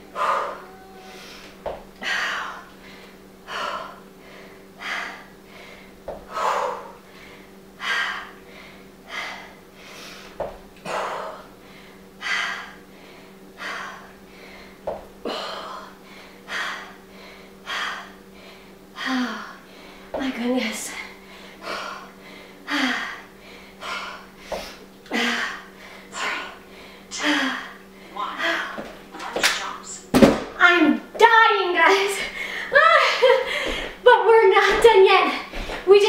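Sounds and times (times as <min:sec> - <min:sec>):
woman breathing hard: 0:00.0 - 0:28.8, 0:32.1 - 0:34.0
foot thuds on exercise step: 0:10.4 - 0:10.7, 0:30.1 - 0:30.6.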